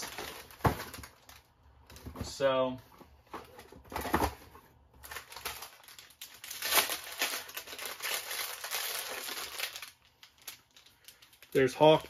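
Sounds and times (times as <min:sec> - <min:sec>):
packaging crinkling: 0:00.0 - 0:01.6, 0:05.0 - 0:12.0.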